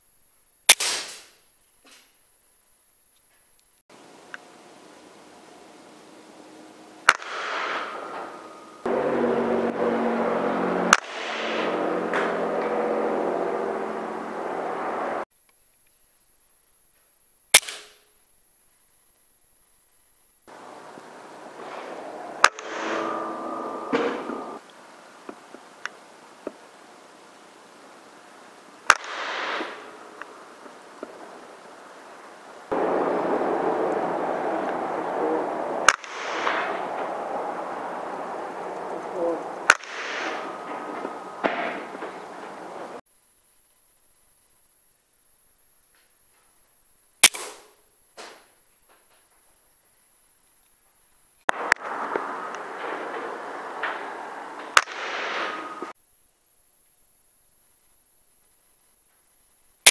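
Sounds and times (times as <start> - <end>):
air rifle shot: 0.7 - 1.4, 7.0 - 8.9, 10.9 - 12.6, 17.6 - 18.0, 20.6 - 23.3, 28.8 - 31.4, 32.7 - 42.8, 47.2 - 47.8, 51.5 - 55.9
mechanical hum: 1.3 - 15.2, 18.0 - 59.7
steady rushing noise: 3.9 - 15.2, 20.5 - 43.0, 51.5 - 56.0.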